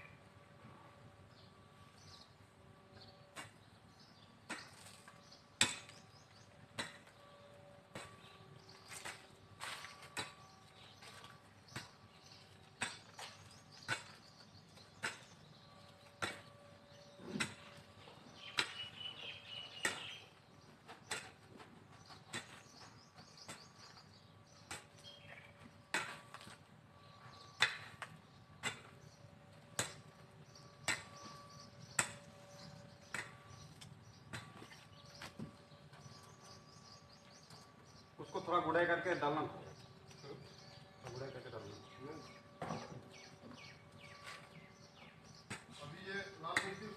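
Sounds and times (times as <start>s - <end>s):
hoe chopping into soil: 16.2s - 16.5s, 17.2s - 17.7s, 25.8s - 26.4s, 27.6s - 29.1s
pickaxe striking soil: 25.9s - 26.4s.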